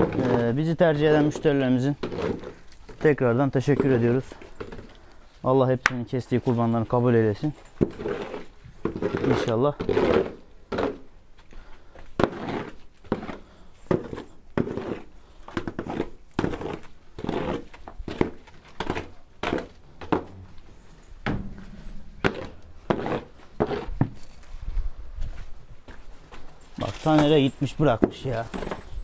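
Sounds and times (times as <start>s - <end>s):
footsteps walking: 17.7s - 29.0s.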